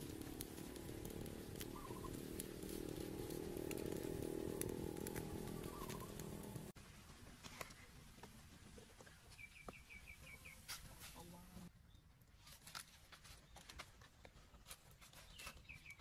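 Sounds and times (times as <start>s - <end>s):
bird chirping: 1.6s - 2.3s, 5.3s - 6.6s, 9.0s - 10.7s, 15.2s - 16.0s.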